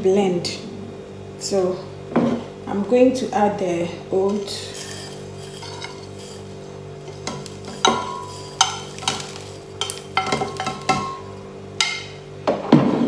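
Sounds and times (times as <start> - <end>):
oats scraped into glass jug: 4.6 - 9.8.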